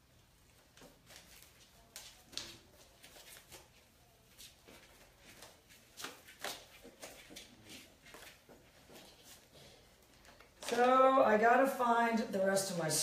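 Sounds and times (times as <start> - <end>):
faint light clicks and scuffles: 0.5 - 10.9.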